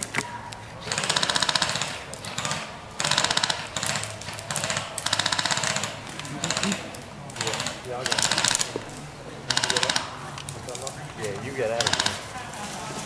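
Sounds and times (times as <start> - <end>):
airsoft rifles firing bursts: 0.8 - 8.8, 9.5 - 10.2, 11.6 - 12.3.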